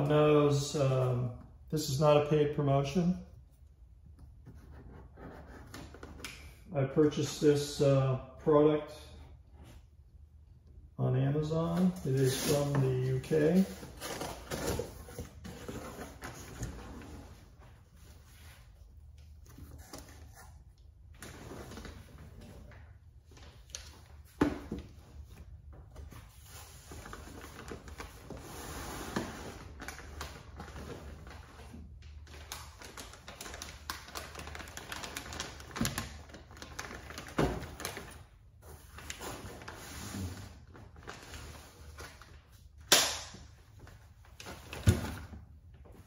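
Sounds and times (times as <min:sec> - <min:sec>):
plastic bags crinkling: 0:32.2 - 0:38.3.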